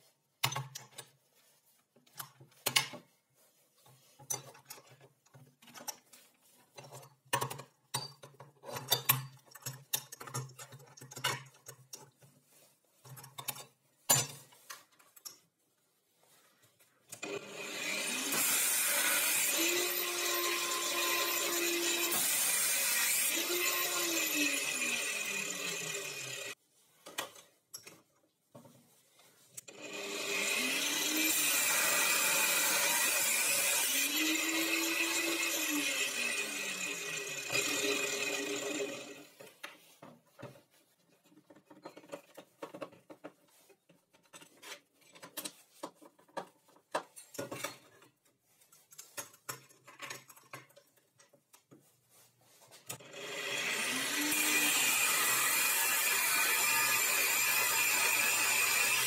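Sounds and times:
angle grinder cutting metal: 0:17.2 - 0:26.6, 0:29.7 - 0:39.4, 0:53.0 - 0:59.0.

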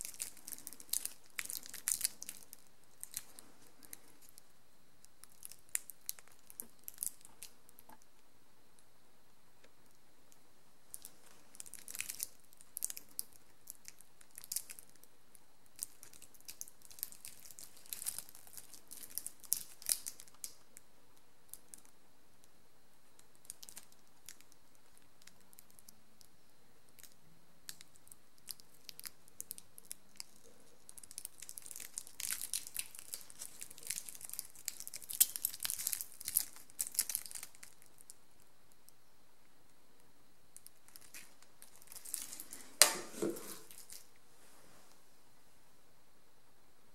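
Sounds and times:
plastic film crinkling and tearing: 0:00.0 - 0:04.4, 0:10.9 - 0:15.1, 0:15.7 - 0:20.6, 0:27.0 - 0:38.1, 0:40.7 - 0:44.1.

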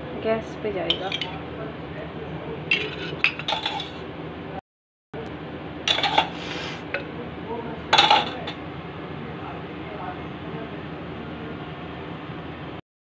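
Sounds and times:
spoon clinking on ceramic bowl: 0:00.9 - 0:01.4.

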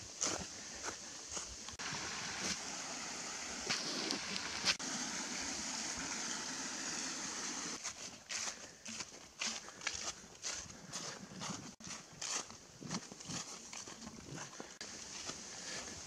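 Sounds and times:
water rushing: 0:01.8 - 0:07.8.

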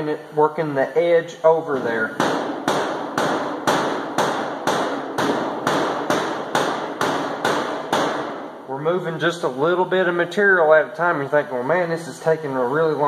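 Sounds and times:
rubber mallet tapping sheet metal: 0:01.7 - 0:08.7.

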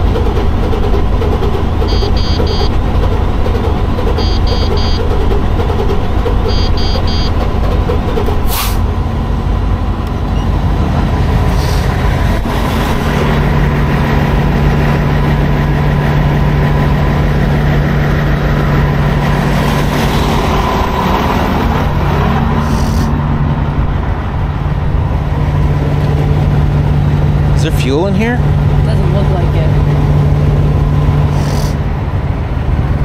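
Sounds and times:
diesel truck engine idling: 0:00.0 - 0:33.0
sharp air hisses: 0:08.5 - 0:08.8.

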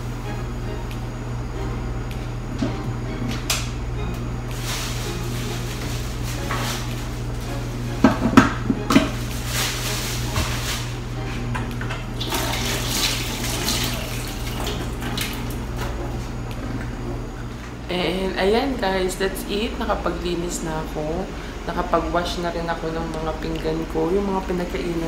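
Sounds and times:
steady low hum: 0:00.0 - 0:25.0
tap water running and splashing: 0:12.2 - 0:15.7.

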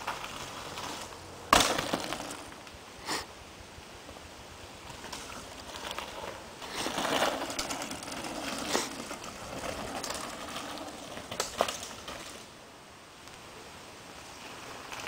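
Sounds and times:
bike tyres crunching over gravel: 0:00.0 - 0:02.8, 0:04.1 - 0:12.6, 0:14.2 - 0:15.0.

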